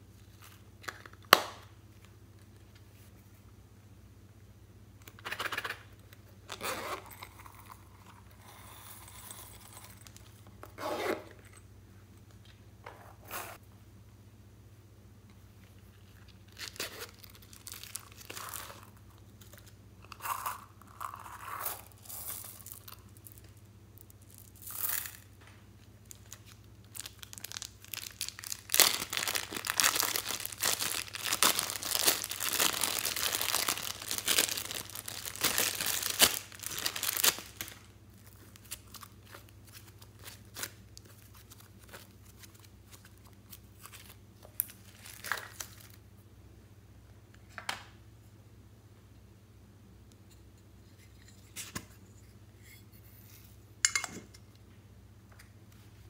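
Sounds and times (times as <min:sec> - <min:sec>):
plastic bag crinkling and tearing: 0:16.0 - 0:19.7, 0:26.1 - 0:46.0.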